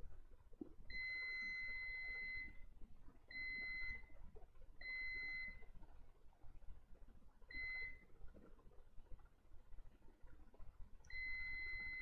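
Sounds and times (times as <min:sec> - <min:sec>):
multimeter beeping: 0:11.1 - 0:12.0.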